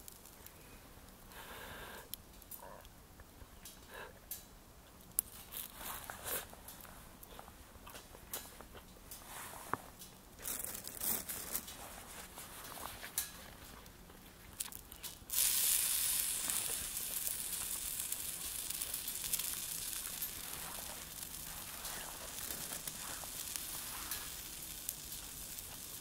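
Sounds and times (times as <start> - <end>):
food sizzling on hot surface: 15.2 - 26.0.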